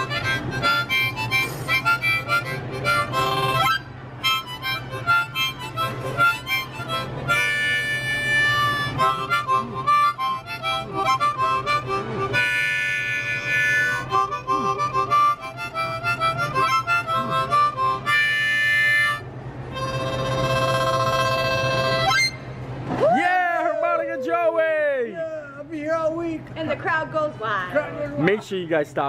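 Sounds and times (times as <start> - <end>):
harmonica playing lively tune: 0.0 - 22.5.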